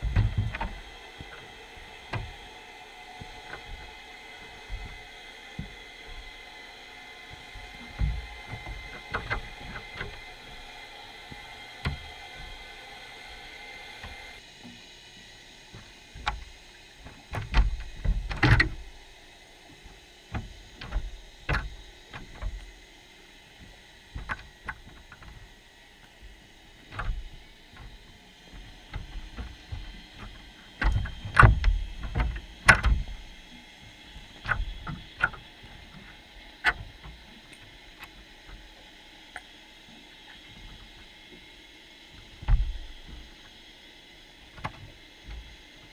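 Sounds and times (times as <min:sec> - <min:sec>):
underwater clicks and knocks: 0:28.9 - 0:33.1.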